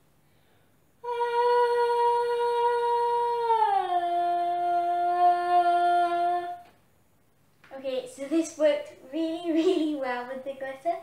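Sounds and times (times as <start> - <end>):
girl singing a long note: 1.0 - 6.8.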